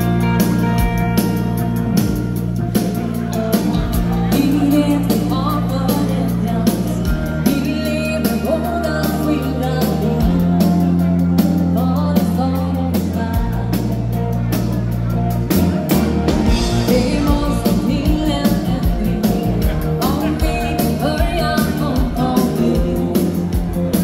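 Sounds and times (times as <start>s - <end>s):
live band music: 0.0s - 24.0s
woman singing: 3.4s - 14.1s, 16.6s - 24.0s.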